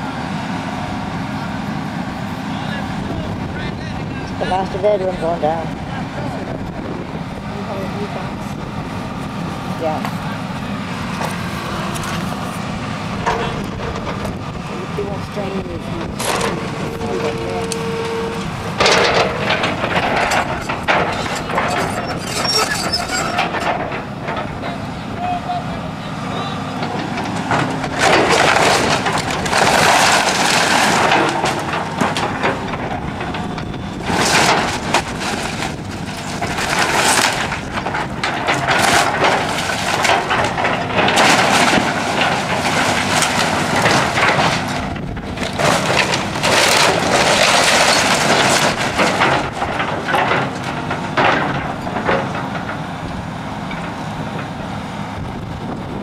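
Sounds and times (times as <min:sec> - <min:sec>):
heavy machine engine: 0:00.0 - 0:56.0
house structure crunching and breaking: 0:09.8 - 0:24.8, 0:26.8 - 0:53.0.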